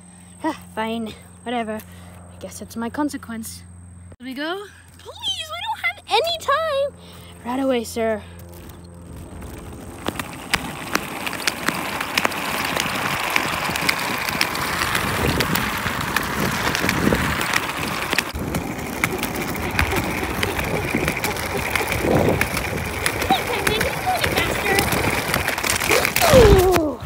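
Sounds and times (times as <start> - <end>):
wicker basket scraping pavement: 7.1 - 27.0
small clicks and ticks: 8.4 - 26.8.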